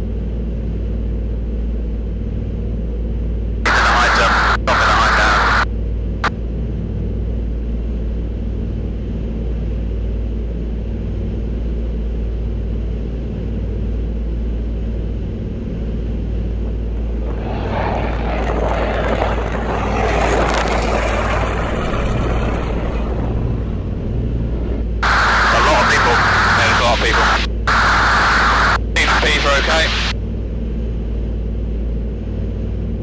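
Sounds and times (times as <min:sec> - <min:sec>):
twin piston engines droning: 0:16.5 - 0:30.1
loud rushing noise: 0:17.0 - 0:30.1.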